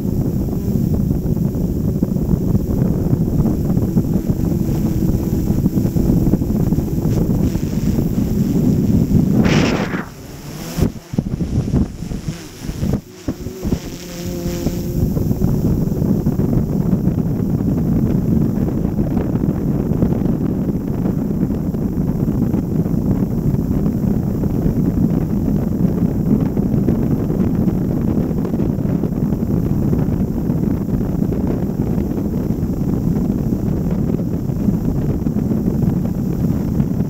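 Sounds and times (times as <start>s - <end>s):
wind rumble on microphone: 0.0s - 37.0s.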